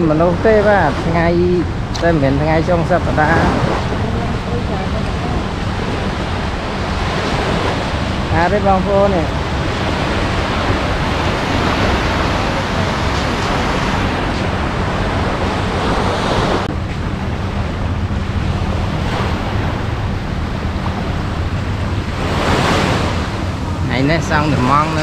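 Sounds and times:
small waves breaking on shore: 0.0 - 25.0
wind buffeting microphone: 0.0 - 25.0.

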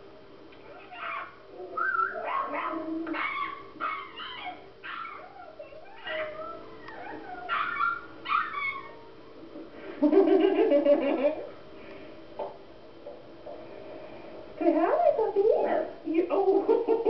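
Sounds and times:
dog whimpering and yipping: 0.7 - 9.1.

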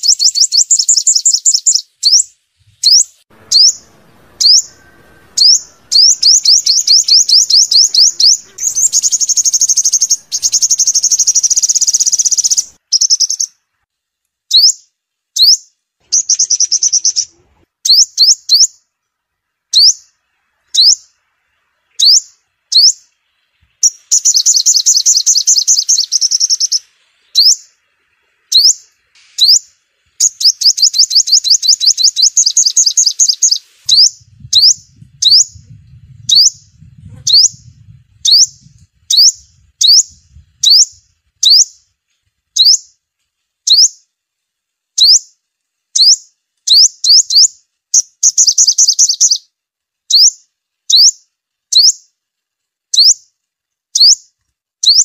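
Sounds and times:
bird fast trills: 0.0 - 13.5, 15.4 - 18.8, 23.8 - 27.8, 28.5 - 41.8, 45.0 - 45.3, 46.0 - 49.4, 50.1 - 52.0
bird high chirps: 0.0 - 13.6, 14.5 - 41.9, 42.5 - 43.0, 43.6 - 44.0, 45.0 - 49.5, 50.1 - 52.1, 52.9 - 53.3, 53.9 - 55.0.

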